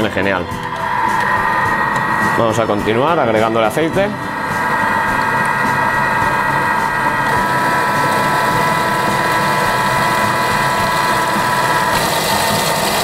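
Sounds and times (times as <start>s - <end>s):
food processor motor whine: 0.4s - 13.0s.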